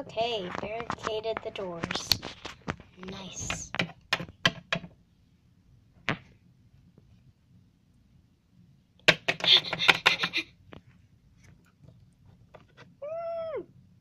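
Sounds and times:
rapid clicking and rattling of toys: 0:09.1 - 0:10.4.

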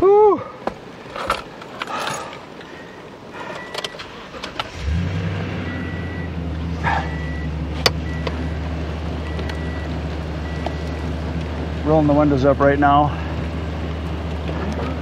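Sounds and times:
truck engine starting and idling: 0:01.1 - 0:15.0.

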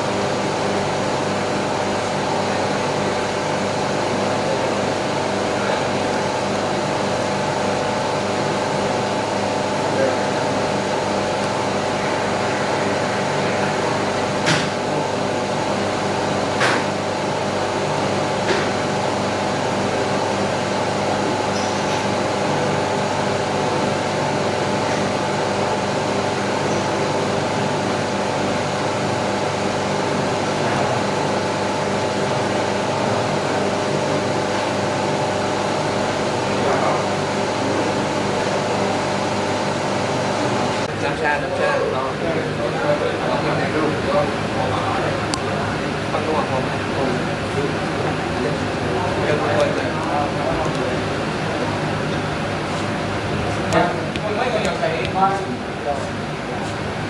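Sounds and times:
mechanical hum: 0:00.0 - 0:57.0
crowd murmur: 0:36.4 - 0:57.0.

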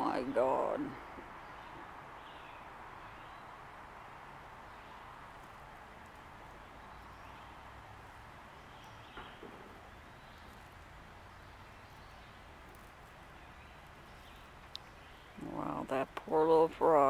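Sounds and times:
outdoor hiss and low rumble: 0:00.0 - 0:17.0.

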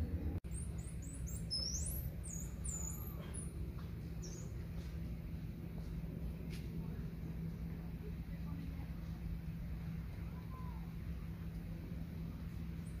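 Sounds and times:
low background rumble: 0:00.0 - 0:13.0
monkeys chirping: 0:00.5 - 0:03.6.

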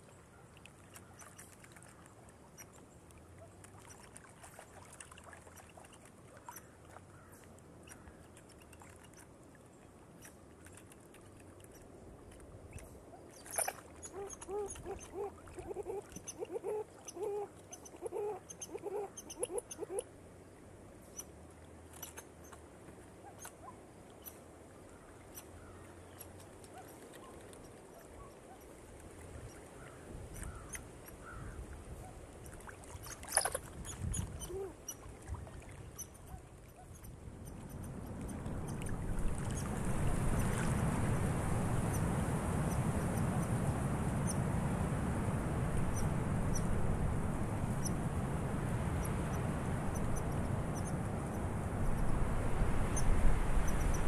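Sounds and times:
wind rustling dry leaves: 0:28.8 - 0:54.0.

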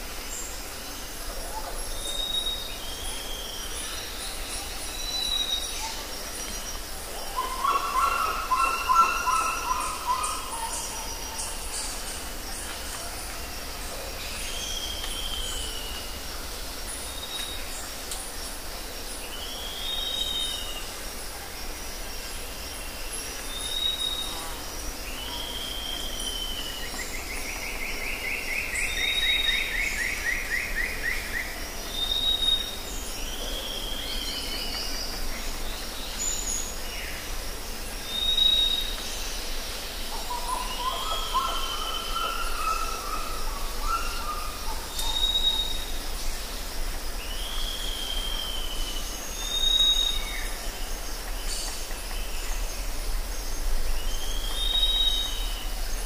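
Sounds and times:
trilled bird call: 0:07.4 - 0:11.1
steady hiss: 0:09.6 - 0:56.0.

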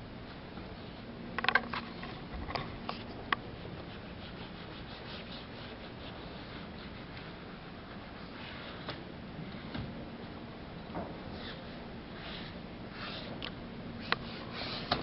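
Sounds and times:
sharp knocks and clicks: 0:01.4 - 0:03.4
hand smearing paint on canvas: 0:02.8 - 0:09.0.

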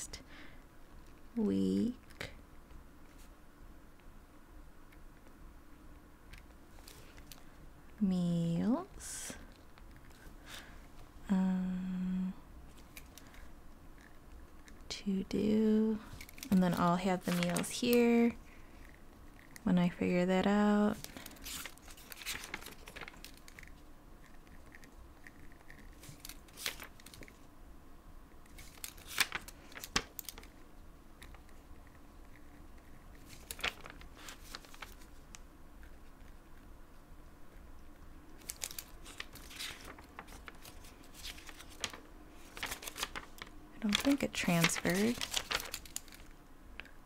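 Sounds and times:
paper pages rustling and crinkling: 0:16.1 - 0:18.4, 0:20.9 - 0:23.7, 0:25.7 - 0:27.4, 0:28.5 - 0:30.6, 0:33.1 - 0:35.3, 0:38.4 - 0:46.3.

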